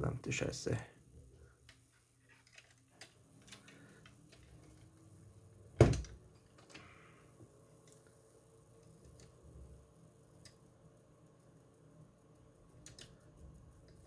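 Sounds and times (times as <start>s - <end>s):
fingers handling plastic parts: 1.6s - 5.0s.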